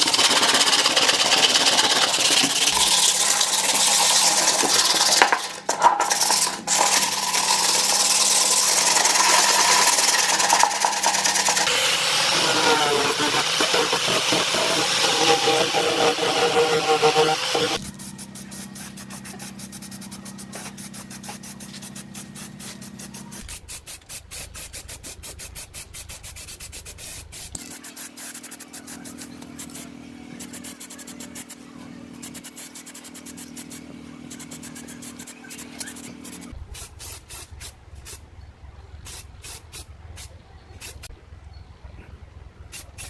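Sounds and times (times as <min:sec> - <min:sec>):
spray paint can spraying: 0:00.0 - 0:31.6, 0:32.2 - 0:38.2, 0:39.0 - 0:41.1, 0:42.7 - 0:43.0
scratchy clicks and rubbing: 0:12.3 - 0:17.9.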